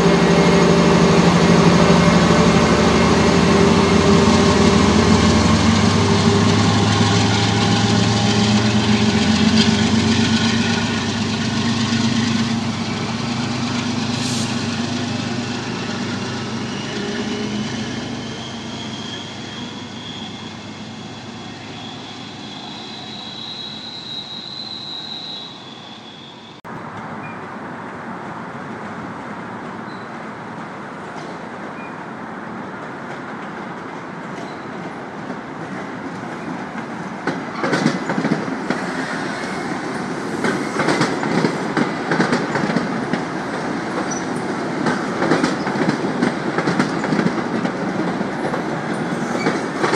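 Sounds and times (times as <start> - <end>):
diesel locomotive engine running: 0.0 - 18.9
train rumbling by: 0.0 - 49.9.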